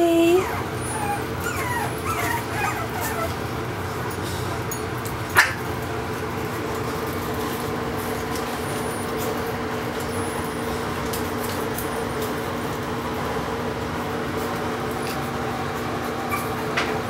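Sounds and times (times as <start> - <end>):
puppies whimpering: 0.0 - 3.7, 16.2 - 16.8
puppy yipping: 0.4 - 3.5, 5.3 - 5.7, 16.3 - 16.9.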